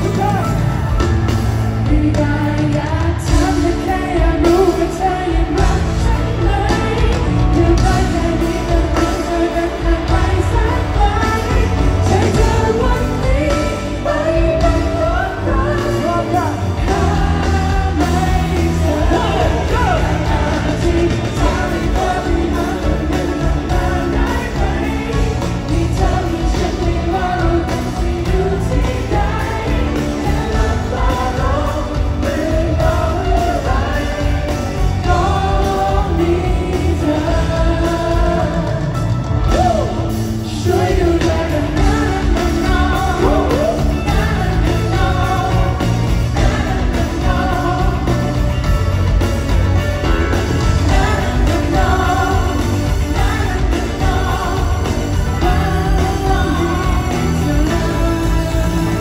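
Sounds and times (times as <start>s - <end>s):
live pop-rock band: 0.0s - 59.0s
man singing into microphone: 1.8s - 48.4s, 50.8s - 59.0s.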